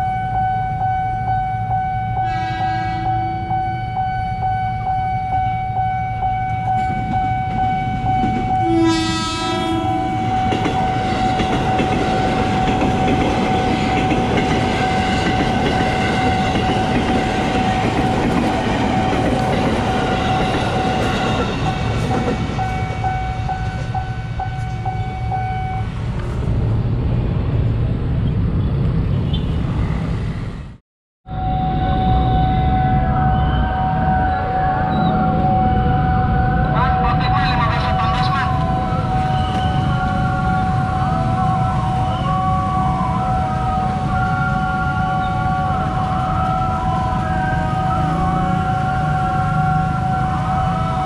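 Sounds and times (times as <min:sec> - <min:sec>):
train horn: 0:02.2 - 0:03.6, 0:08.5 - 0:11.3
train rumble and wheel clatter: 0:06.4 - 0:30.8, 0:31.8 - 0:51.0.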